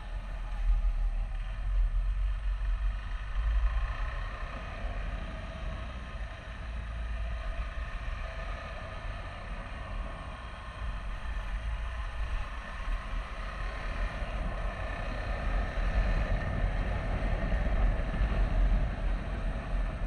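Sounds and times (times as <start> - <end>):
motorcycle engine running: 0.0 - 20.0
wind rumble on microphone: 0.0 - 20.0.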